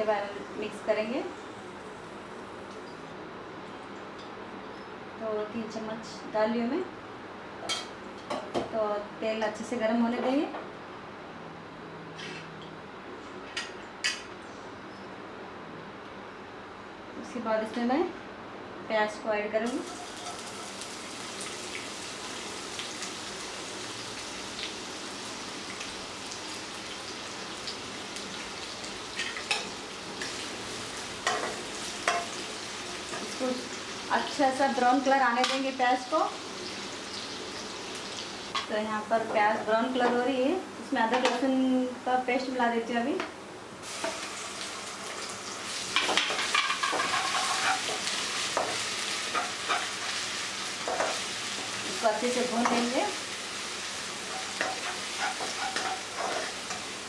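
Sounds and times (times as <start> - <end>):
onions sizzling in hot oil: 19.7 - 43.0, 43.8 - 57.0
spatula scraping a pan: 46.0 - 50.2, 54.2 - 56.9.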